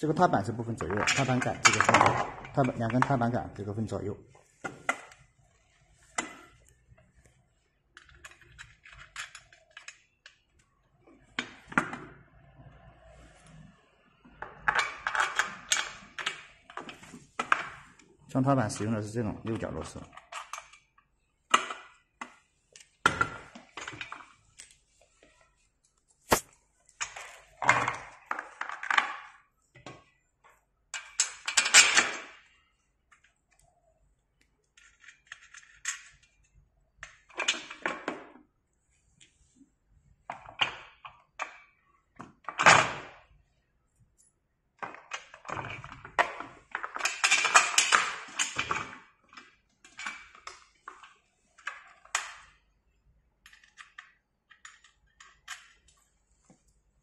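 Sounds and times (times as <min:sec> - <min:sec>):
sharp click: 0:26.3 - 0:26.5.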